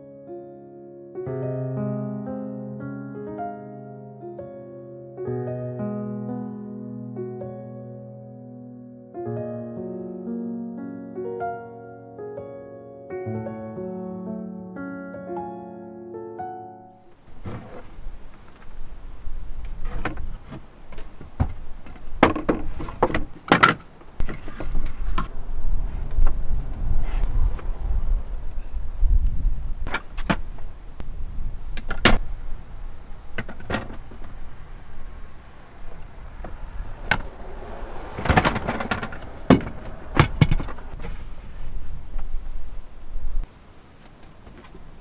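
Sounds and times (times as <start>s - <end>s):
wooden panels knocking and scraping: 19.7s - 25.3s, 33.4s - 34.4s, 38.2s - 41.6s
low rumble: 24.2s - 29.9s, 30.5s - 43.4s.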